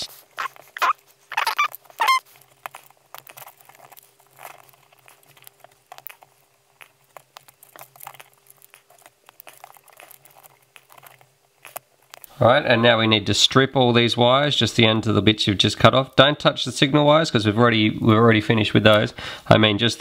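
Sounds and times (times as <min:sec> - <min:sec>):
wires rustling and clicking: 0:00.0 - 0:12.4.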